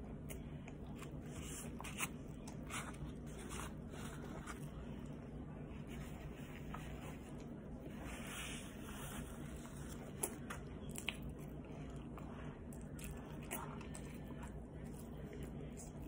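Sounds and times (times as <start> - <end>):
steady low hum: 0.0 - 16.0
person chewing fries: 9.2 - 16.0.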